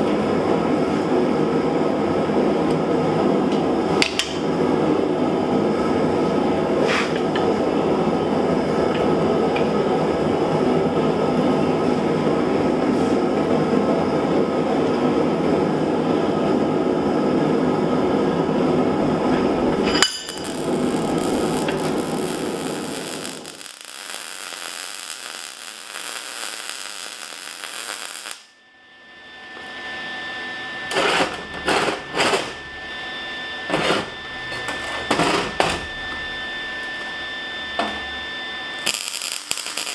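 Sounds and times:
forge roaring: 14.1 - 28.4
metal clank: 19.3 - 20.4
steel clanking on a worktable: 19.8 - 20.5.

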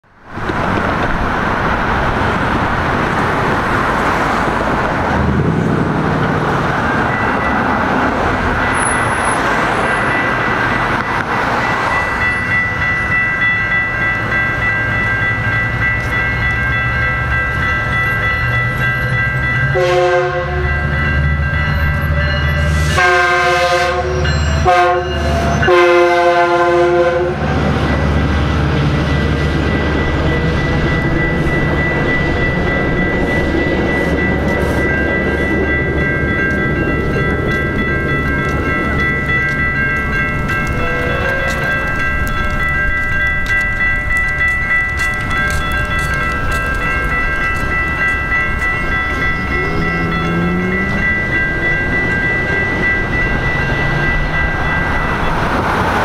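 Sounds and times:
train rumble: 0.0 - 56.0
railroad crossing bells ringing: 0.4 - 56.0
train horn: 19.8 - 20.8, 22.6 - 27.6, 40.8 - 41.7.

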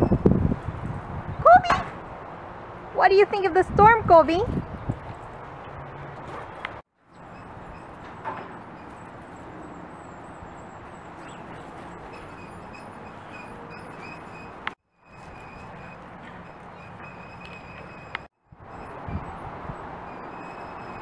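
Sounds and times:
strong wind on microphone: 0.0 - 2.3, 2.9 - 6.3, 18.0 - 21.0.

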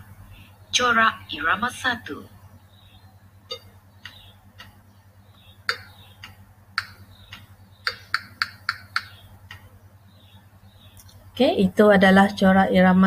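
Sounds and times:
wood block clicks: 3.5 - 4.8, 5.6 - 9.7.

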